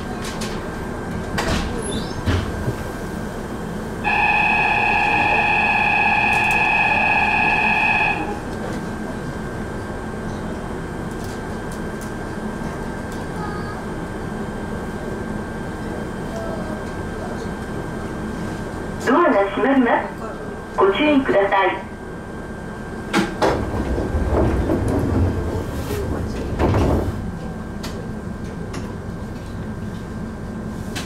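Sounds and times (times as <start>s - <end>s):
electric train humming: 0.0s - 31.0s
loud electronic tone: 4.0s - 8.4s.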